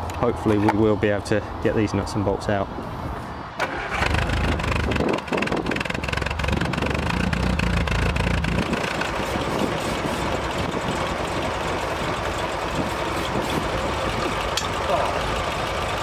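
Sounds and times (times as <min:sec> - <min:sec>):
car engine idling: 0:03.7 - 0:16.0.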